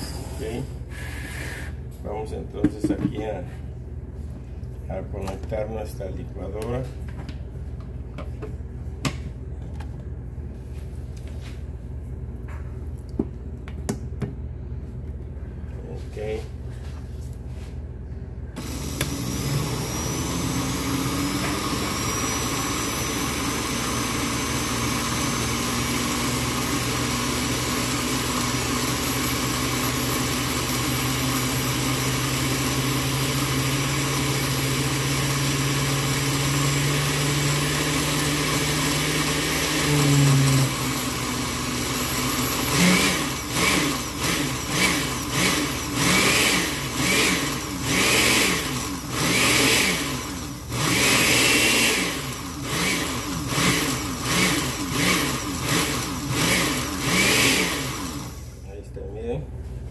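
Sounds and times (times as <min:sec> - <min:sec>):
blender motor running: 0:18.6 - 0:58.6.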